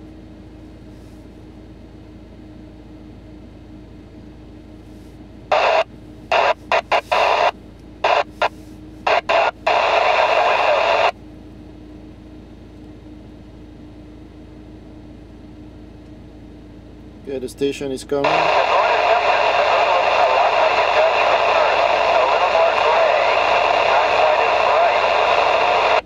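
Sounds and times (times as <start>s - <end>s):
radio squelch opening and closing: 5.5s - 11.1s, 18.2s - 26.0s
radio static bursts: 5.5s - 11.1s, 18.2s - 26.0s.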